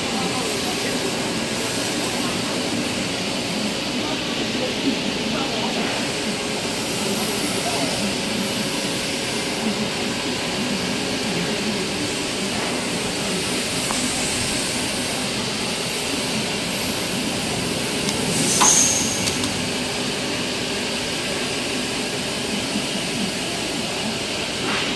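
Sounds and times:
factory machinery humming: 0:00.0 - 0:24.9.

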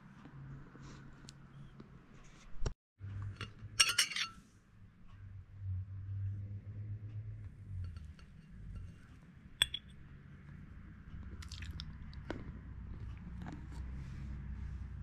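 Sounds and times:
fork clinking on ceramic plate: 0:03.8 - 0:04.4, 0:09.6 - 0:09.9.

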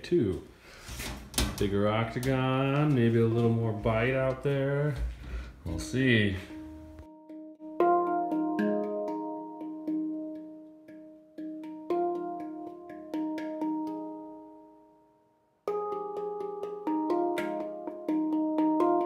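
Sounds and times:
handpan notes ringing: 0:06.0 - 0:14.9, 0:15.7 - 0:19.0.

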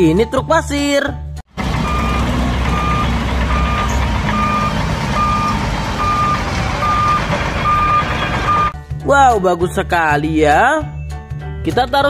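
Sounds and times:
diesel engine running: 0:01.5 - 0:08.8
back-up alarm beeping: 0:01.8 - 0:08.8.

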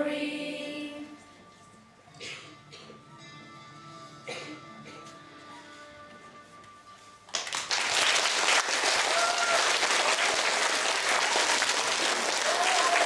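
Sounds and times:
audience applause: 0:07.3 - 0:13.0.

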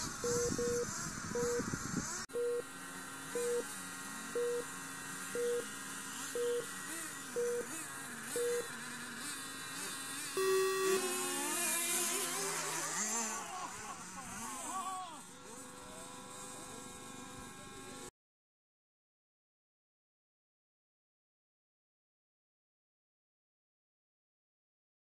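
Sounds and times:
toy car motors whining: 0:00.0 - 0:18.1
short timing beeps: 0:02.4 - 0:02.6, 0:03.4 - 0:03.7, 0:04.4 - 0:04.7, 0:05.4 - 0:05.7, 0:06.4 - 0:06.7, 0:07.4 - 0:07.7, 0:08.4 - 0:08.7, 0:10.4 - 0:11.2
low start tone: 0:10.4 - 0:12.0.

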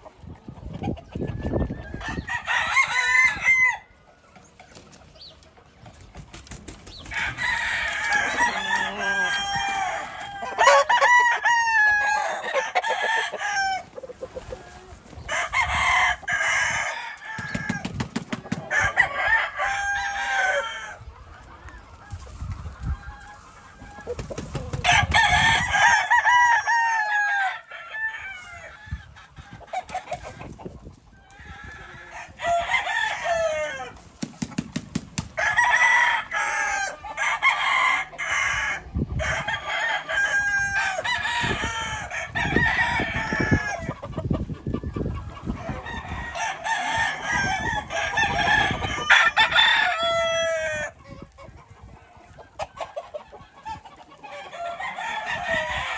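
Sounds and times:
chickens clucking: 0:00.0 - 0:35.4, 0:36.0 - 0:55.9
roosters crowing: 0:01.1 - 0:04.6, 0:06.8 - 0:55.9.

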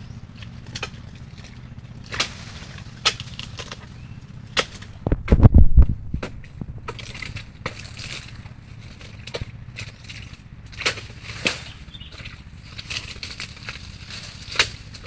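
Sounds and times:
pruning blade chopping wood: 0:00.3 - 0:15.0
heavy low thuds: 0:04.9 - 0:07.0.

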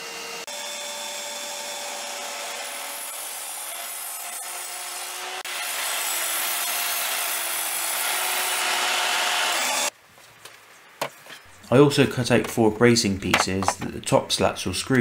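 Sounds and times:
mitre saw motor whine: 0:00.0 - 0:03.4, 0:07.6 - 0:09.9
saw blade rasping through wood: 0:00.0 - 0:09.9.

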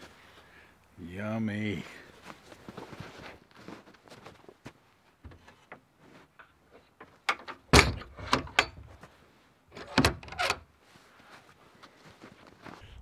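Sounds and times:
wooden door knocks and thuds: 0:07.7 - 0:08.9.

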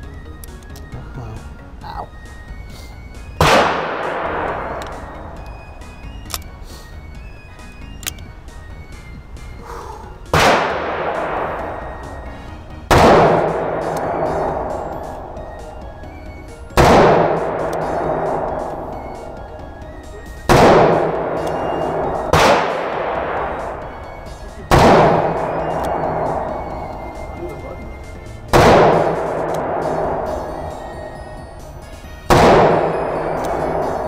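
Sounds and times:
revolver shots echoing: 0:03.4 - 0:06.1, 0:10.3 - 0:16.1, 0:16.7 - 0:34.0.

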